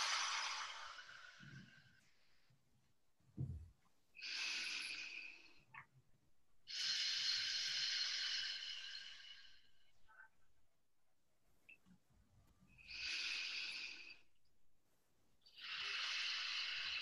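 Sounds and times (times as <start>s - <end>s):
deep breathing: 0.0s - 2.6s, 4.2s - 5.9s, 6.6s - 10.4s, 12.7s - 14.5s, 15.5s - 17.0s
soft low thump: 3.4s - 3.7s.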